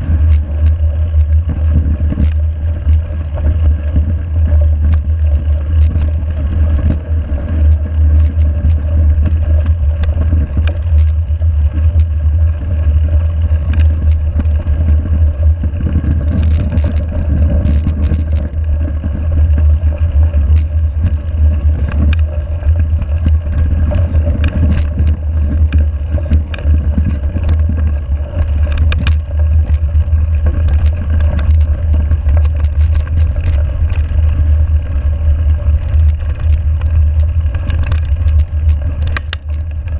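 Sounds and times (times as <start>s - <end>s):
bike clicks and rattles: 0.0s - 39.9s.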